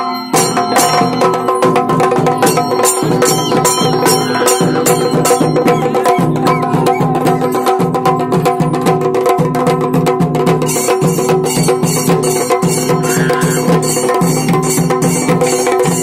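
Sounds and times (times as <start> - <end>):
metallic cymbals: 0.0 - 7.9
rapid drum strokes: 0.3 - 16.0
steady held notes: 0.7 - 7.8.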